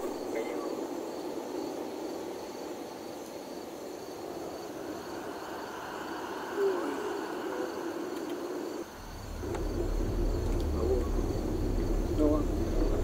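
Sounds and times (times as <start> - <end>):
car road and engine noise: 4.7 - 13.0.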